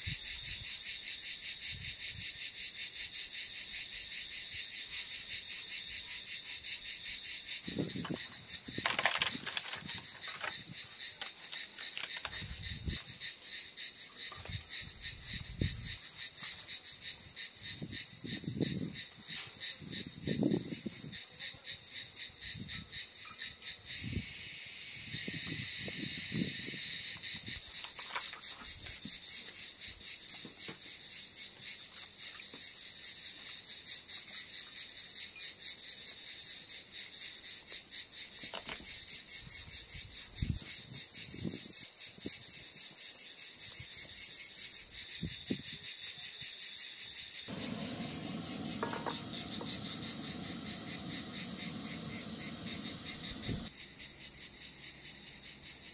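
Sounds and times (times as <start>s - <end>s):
insects chirping: 0.0s - 55.9s
gas burner rushing: 47.5s - 53.7s.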